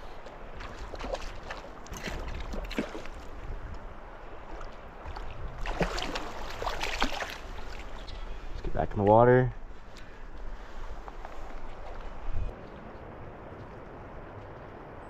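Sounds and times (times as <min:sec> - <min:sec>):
landing net scooping water: 0:00.2 - 0:03.4, 0:04.4 - 0:08.1
fish splashing in water: 0:05.2 - 0:07.9.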